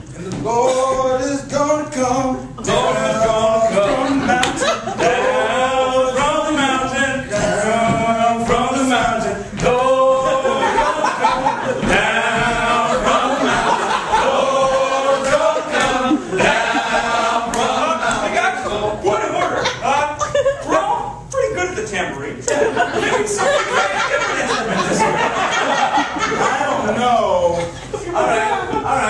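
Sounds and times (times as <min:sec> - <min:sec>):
men singing a cappella: 0:00.0 - 0:20.2.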